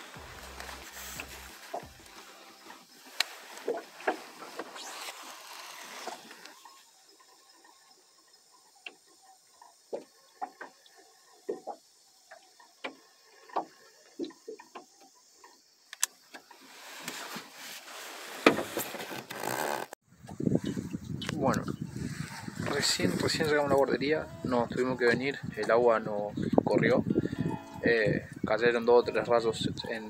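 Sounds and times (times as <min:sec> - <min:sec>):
fishing line hissing out: 0:00.0 - 0:07.9.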